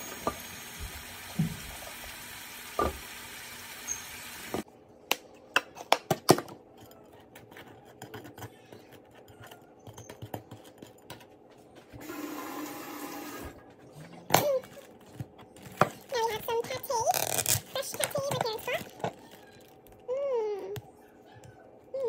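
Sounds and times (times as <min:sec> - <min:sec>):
chicken frying: 0:00.0 - 0:04.7
knife clicking and scraping bread: 0:06.7 - 0:11.4.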